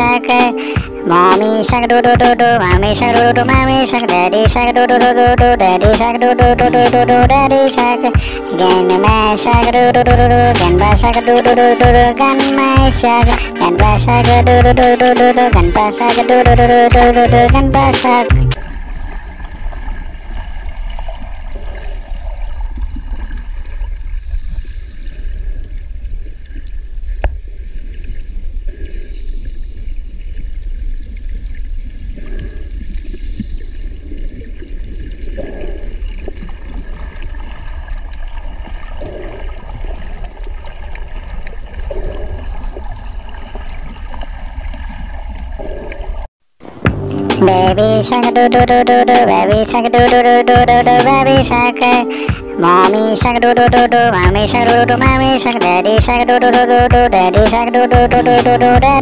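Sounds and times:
underwater water rumble and gurgling: 18.6s - 46.3s.

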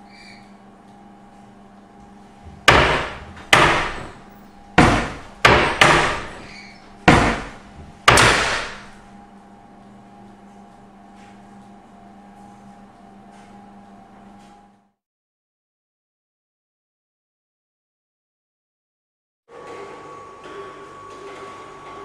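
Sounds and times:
wooden door banging shut: 2.5s - 4.2s, 4.8s - 8.9s.

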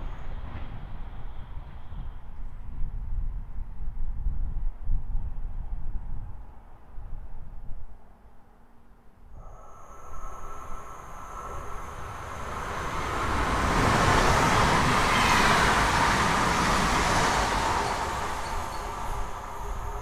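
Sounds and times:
electric train rolling noise: 9.4s - 20.0s
steady high tones: 9.4s - 20.0s.

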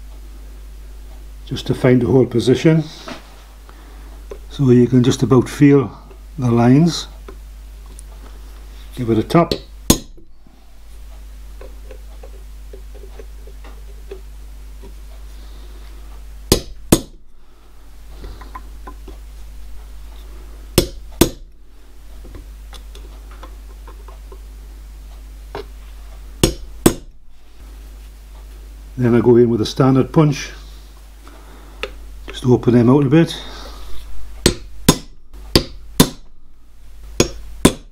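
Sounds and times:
steady low hum: 0.0s - 37.9s
hammer tapping punch on metal: 9.5s - 10.3s, 16.5s - 17.2s, 20.8s - 21.6s, 26.4s - 27.2s, 34.4s - 36.4s, 37.2s - 37.9s.

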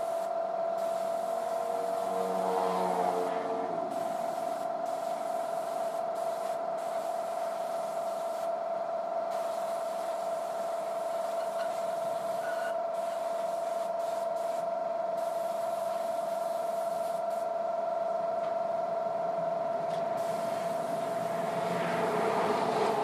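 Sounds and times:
air spray gun hissing: 0.0s - 2.5s, 3.9s - 8.6s, 9.3s - 17.5s, 20.2s - 21.6s
steady tone: 0.8s - 5.0s.

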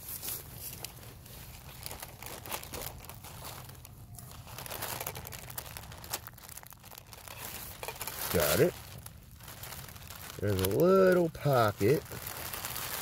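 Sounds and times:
fabric crinkling and rustling: 0.0s - 13.0s.

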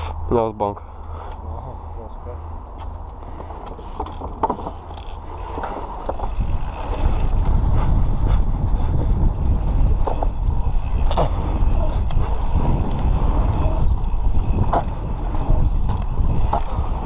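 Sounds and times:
bike clicks and knocks: 2.6s - 7.9s, 9.2s - 17.0s
wind buffeting microphone: 3.3s - 17.0s.

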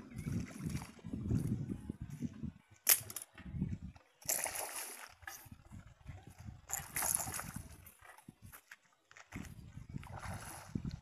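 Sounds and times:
wind rumble on microphone: 0.0s - 11.0s
fish splashing water: 4.2s - 5.2s, 10.0s - 10.8s.

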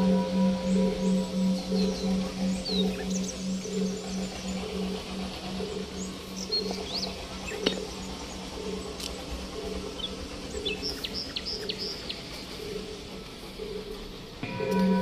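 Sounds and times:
small birds chirping: 0.0s - 15.0s
steady low drone: 0.0s - 15.0s.

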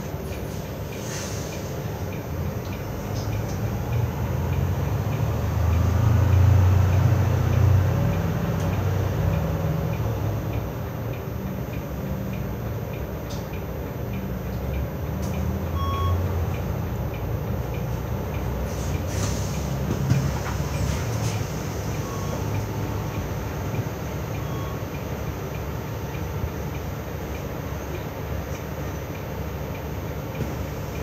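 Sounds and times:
bus engine and road rumble: 0.0s - 31.0s
short air hiss: 1.0s - 1.7s, 18.7s - 19.6s.

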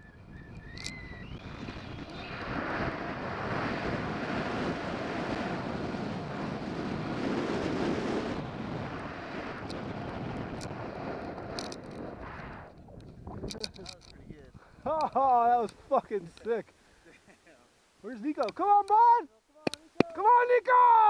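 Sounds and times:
wind on camera microphone: 0.0s - 15.9s
board hissing through snow: 1.5s - 9.6s.

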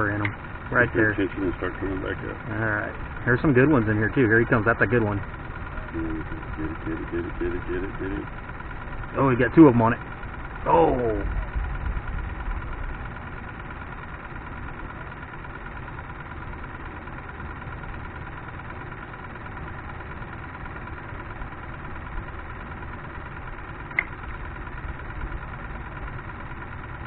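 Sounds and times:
high whine: 0.0s - 16.6s
low motor hum: 0.0s - 27.0s
sharp click: 23.9s - 24.2s.

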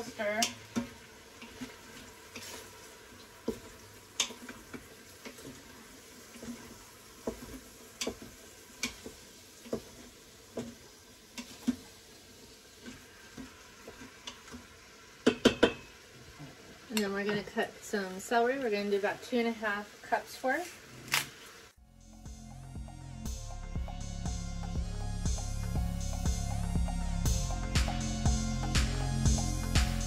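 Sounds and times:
faint sizzle: 0.0s - 21.8s.

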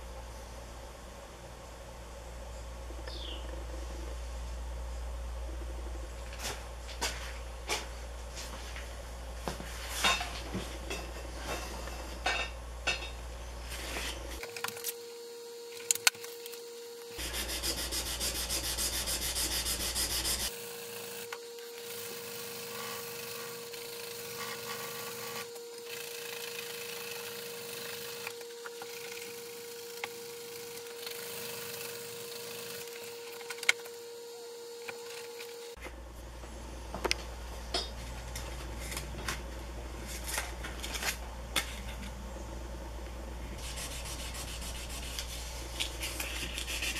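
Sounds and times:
faint steady hum: 0.0s - 46.9s
metal file scratchy rubbing: 17.2s - 20.5s, 43.6s - 46.9s.

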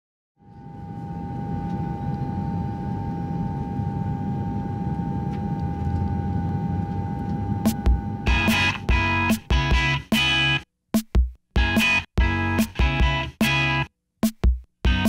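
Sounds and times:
plane engines droning: 0.4s - 9.9s
steady hum tone: 0.4s - 10.1s.

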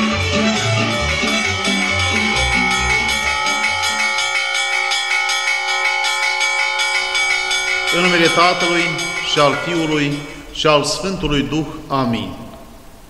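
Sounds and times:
rhythmic low-pitched music: 0.0s - 5.6s
church bells ringing: 0.0s - 13.0s.

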